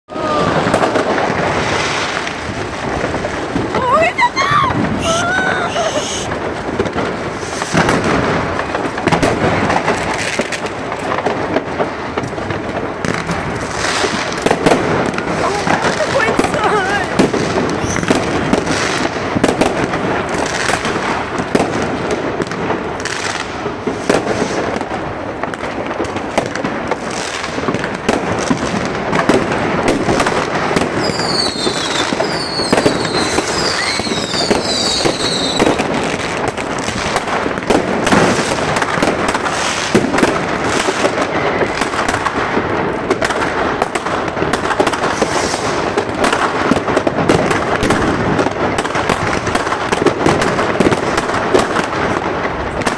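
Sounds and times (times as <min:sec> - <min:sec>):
firecrackers crackling and banging: 0:00.1 - 0:52.9
shrill firework whistles: 0:05.0 - 0:06.3, 0:17.8 - 0:18.2, 0:31.0 - 0:35.8.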